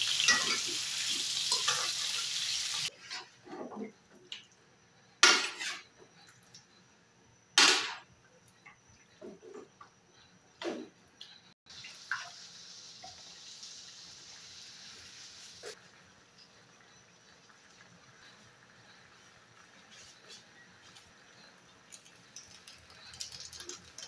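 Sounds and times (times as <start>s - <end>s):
chicken sizzling: 0.0s - 3.0s, 11.7s - 24.0s
metal spatula scraping wok: 5.2s - 5.9s.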